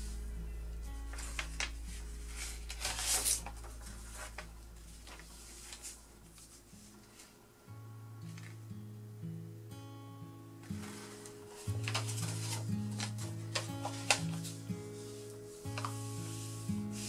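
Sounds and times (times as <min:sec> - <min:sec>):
soft background music: 0:00.0 - 0:17.0
paper rustling on a table: 0:01.1 - 0:07.4, 0:10.6 - 0:17.0.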